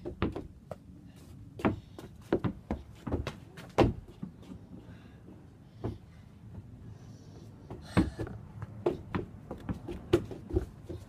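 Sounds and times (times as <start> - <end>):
tennis ball tapping off feet: 7.7 - 11.0.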